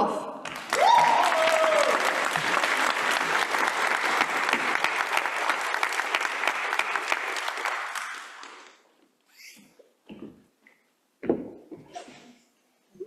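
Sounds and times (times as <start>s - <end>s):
audience applauding: 0.4s - 8.8s.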